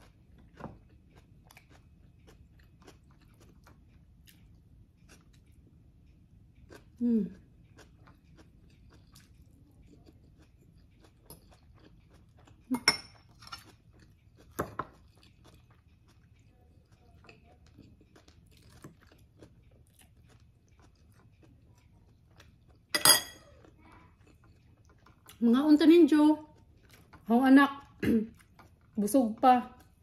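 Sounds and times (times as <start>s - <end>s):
person chewing and crunching food: 0.0s - 25.5s, 26.1s - 30.0s
sharp clinks of cutlery on dishes: 23.0s - 23.5s.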